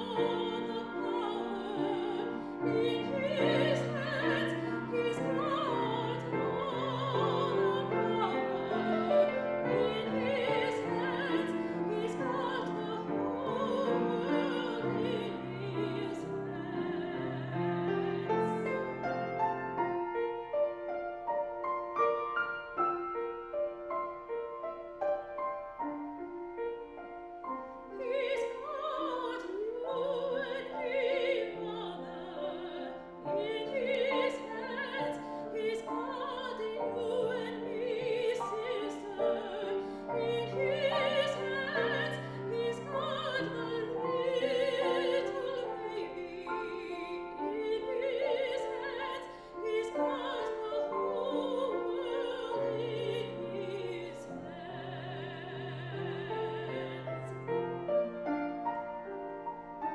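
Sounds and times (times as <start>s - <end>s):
woman singing with vibrato: 0.0s - 19.0s, 27.8s - 57.7s
grand piano: 0.0s - 59.9s.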